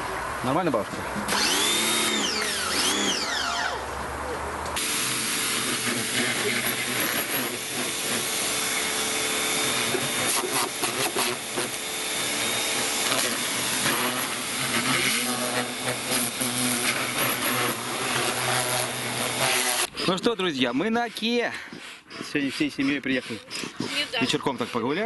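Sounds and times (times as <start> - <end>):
machine motor running with hiss: 4.8 - 19.9.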